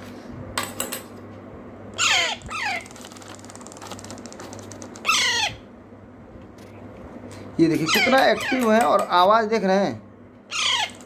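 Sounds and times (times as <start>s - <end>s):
parakeet chicks squawking: 1.9s - 5.7s, 7.6s - 9.1s, 10.5s - 11.0s.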